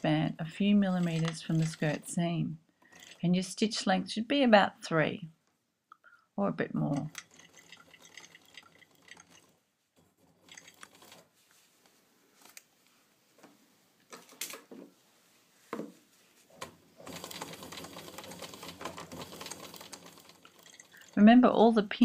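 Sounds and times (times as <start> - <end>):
sewing machine stitching: 0.0 - 3.6, 6.9 - 11.4, 16.6 - 21.4.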